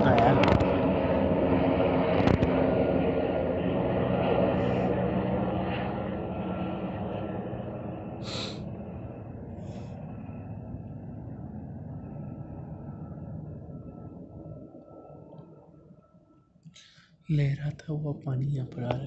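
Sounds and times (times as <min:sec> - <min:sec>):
quadcopter drone buzzing: 0:00.0 - 0:14.2
short hiss: 0:08.2 - 0:08.6.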